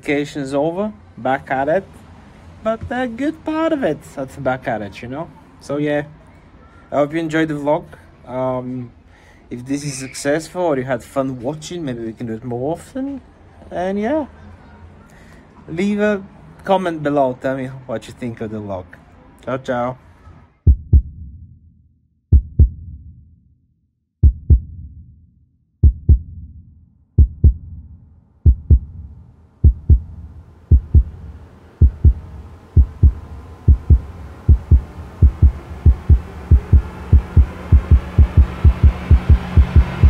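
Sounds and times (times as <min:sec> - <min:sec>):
deep heartbeat thumps: 0:20.7 - 0:21.6, 0:22.3 - 0:23.2, 0:24.2 - 0:25.2, 0:25.8 - 0:40.0.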